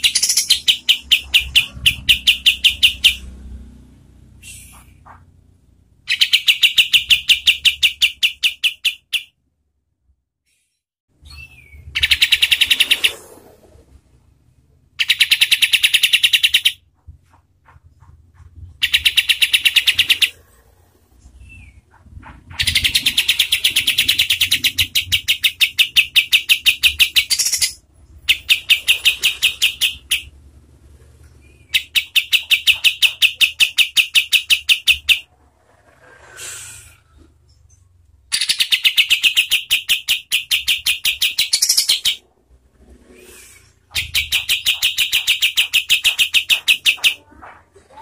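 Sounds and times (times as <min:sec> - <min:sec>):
bird singing rapid rolls: 0:00.0 - 0:03.4.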